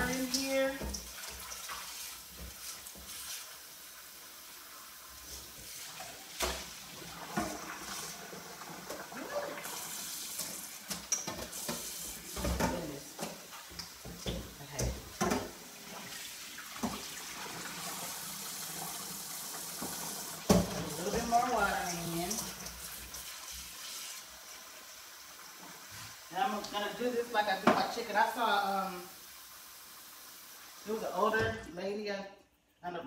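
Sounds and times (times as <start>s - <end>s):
faucet water running into pot: 0.0s - 31.5s.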